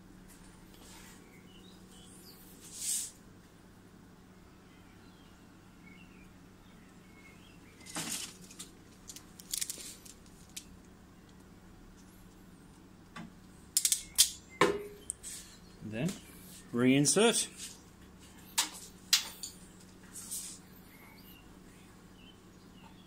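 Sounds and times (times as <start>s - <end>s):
steady low hum: 0.0s - 23.0s
wire handling rustles: 7.8s - 10.7s.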